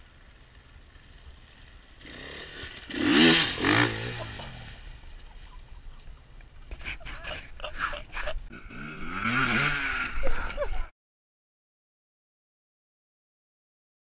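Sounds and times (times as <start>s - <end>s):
dirt bike engine revving: 1.6s - 5.3s, 8.5s - 10.9s.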